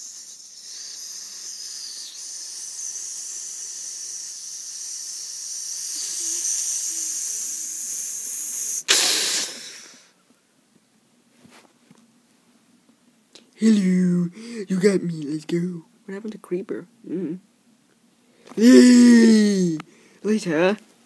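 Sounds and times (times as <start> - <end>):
long fuse hiss: 0.0 - 10.2.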